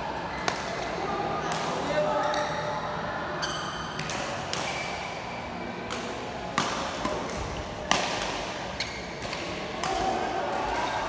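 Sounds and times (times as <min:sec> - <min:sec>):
rackets hitting shuttlecock: 0:05.8 - 0:11.0.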